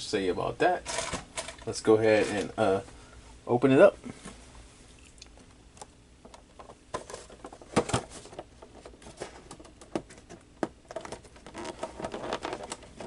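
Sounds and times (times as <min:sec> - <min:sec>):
cardboard crinkling: 0:06.6 - 0:13.0.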